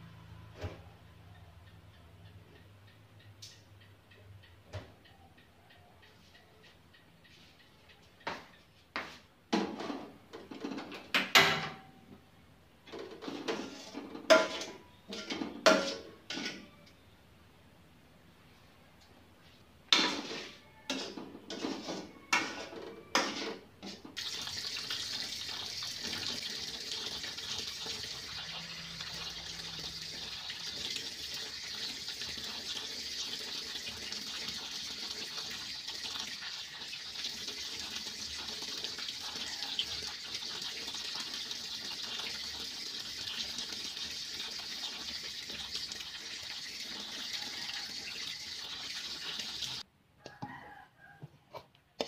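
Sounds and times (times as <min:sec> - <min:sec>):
hands washing food: 0:24.2 - 0:49.8
tap water running into sink: 0:24.2 - 0:49.8.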